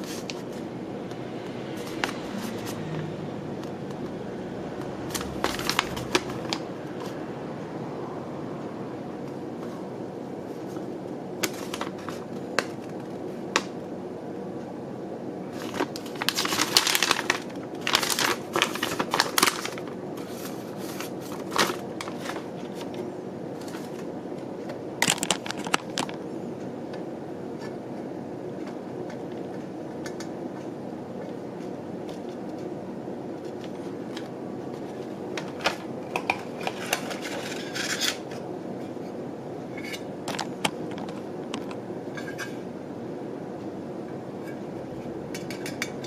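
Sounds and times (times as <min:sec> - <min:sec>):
steady low hum: 0:00.0 - 0:46.0
paper rustling and crinkling: 0:05.1 - 0:06.7, 0:15.5 - 0:23.0.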